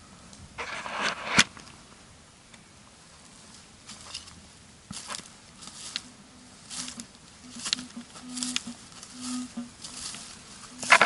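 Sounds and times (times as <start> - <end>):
footsteps crunching through leaves: 3.4 - 11.0
metal detector beeps: 6.8 - 10.1, 10.7 - 11.0.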